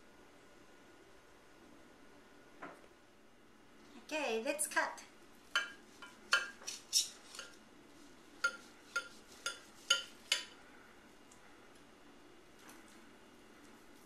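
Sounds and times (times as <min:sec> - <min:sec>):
knife and fork clinking on platter: 0:08.4 - 0:10.6.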